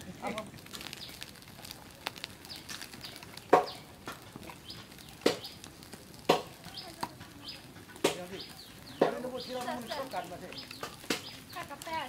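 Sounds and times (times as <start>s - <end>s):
high bird chirps: 4.6s - 5.6s.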